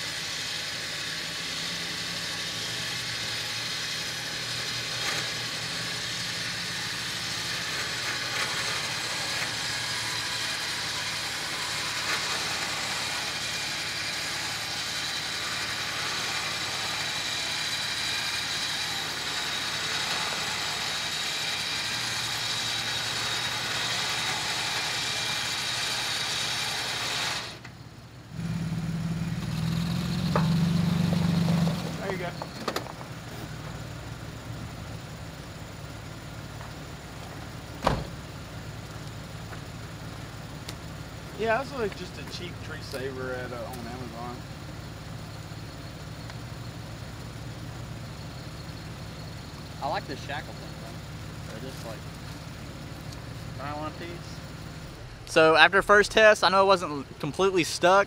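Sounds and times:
electric winch whining: 0.0 - 27.8
engine idling: 0.0 - 58.0.

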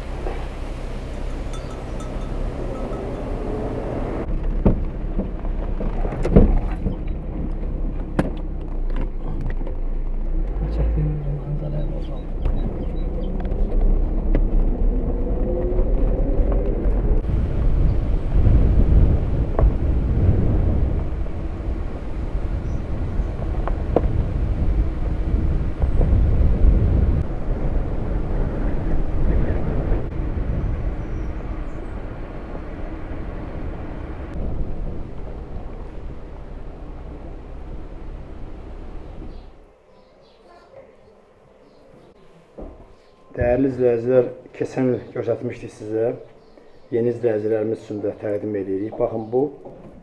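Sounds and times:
car driving on dirt track: 0.0 - 39.6.

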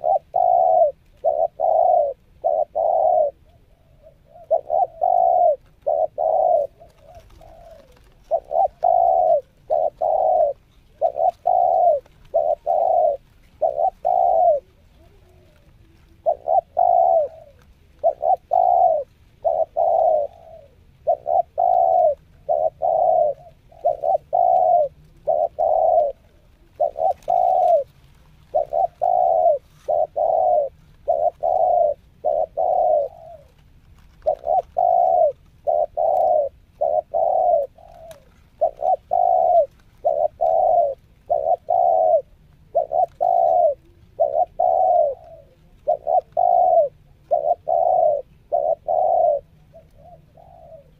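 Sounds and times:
dove cooing: 0.0 - 50.9.

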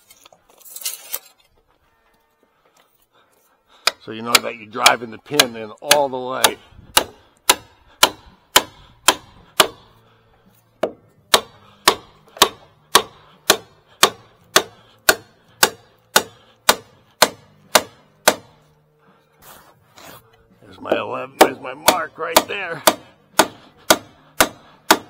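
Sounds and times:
hammer striking wooden peg: 3.8 - 9.9, 10.8 - 18.6, 20.9 - 25.0.

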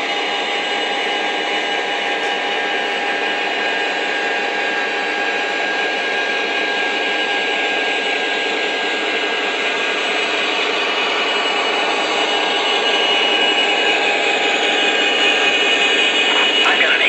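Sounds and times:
high whine: 13.4 - 17.0.

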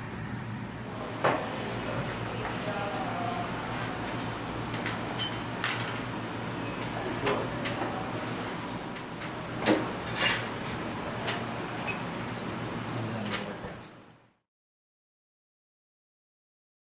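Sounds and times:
low background hum: 0.0 - 14.4.

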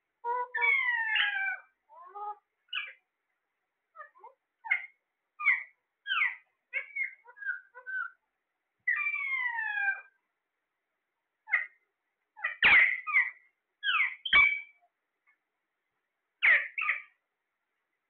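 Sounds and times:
parakeets squawking: 0.4 - 3.0, 4.0 - 8.2, 8.9 - 10.1, 12.4 - 14.7, 16.4 - 17.1.

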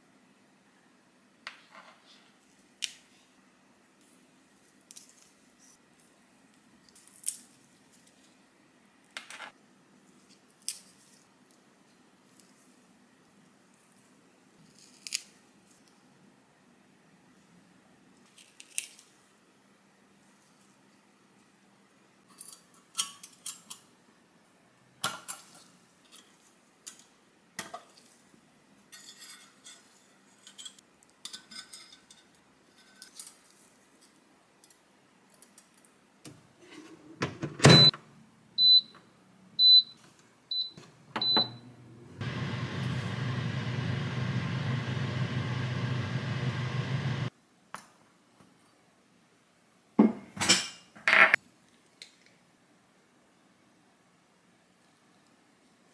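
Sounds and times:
oven fan running: 41.3 - 47.3.

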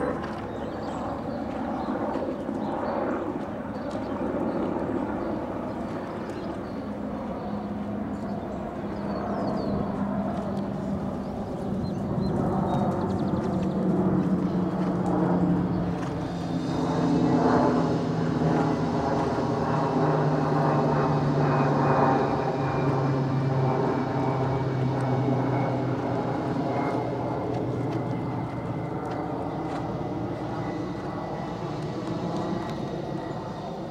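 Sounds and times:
propeller airplane engine droning: 0.0 - 33.9.

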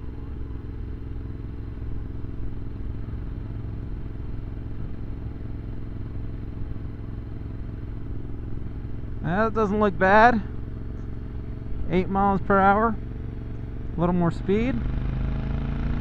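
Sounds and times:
motorcycle engine cruising: 0.0 - 16.0.

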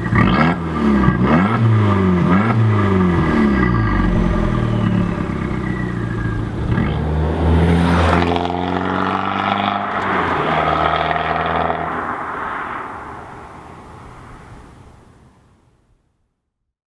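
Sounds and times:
car engine accelerating hard: 0.0 - 13.3.

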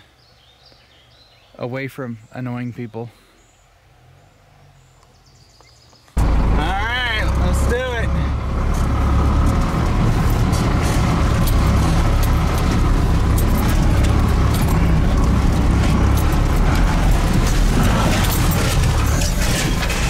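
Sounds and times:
truck engine idling: 6.2 - 20.0.

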